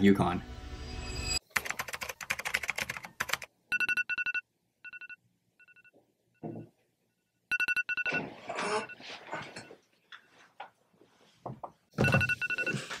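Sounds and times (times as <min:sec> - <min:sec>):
electronic alarm beeping: 0:03.7 - 0:06.7, 0:07.5 - 0:09.0, 0:12.0 - 0:13.0.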